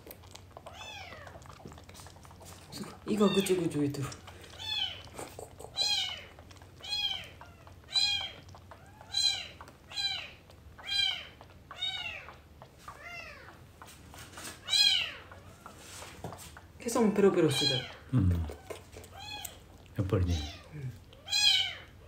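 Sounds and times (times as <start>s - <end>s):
kitten meowing: 0.7s - 1.3s, 3.1s - 3.6s, 4.6s - 5.1s, 5.8s - 12.3s, 14.6s - 15.7s, 17.5s - 19.6s, 20.2s - 21.9s.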